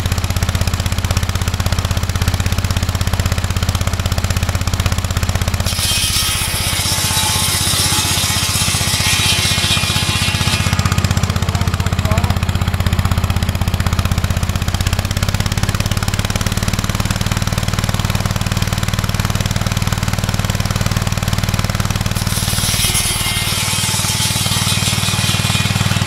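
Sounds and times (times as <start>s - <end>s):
garden tractor engine running: 0.0s - 26.0s
saw blade cutting log: 5.4s - 13.2s, 21.5s - 26.0s.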